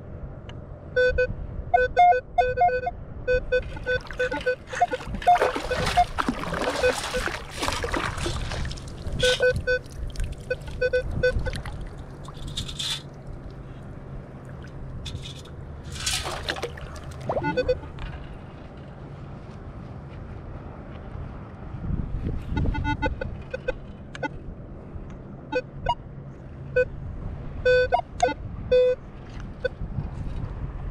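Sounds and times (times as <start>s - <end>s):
metal detector short beeps: 1.0s - 6.2s, 9.2s - 9.8s, 10.5s - 11.5s, 17.3s - 17.9s, 22.6s - 24.3s, 27.7s - 29.0s
water sloshing and splashing: 3.6s - 18.7s
sand scoop digging: 12.2s - 13.1s, 15.1s - 17.6s.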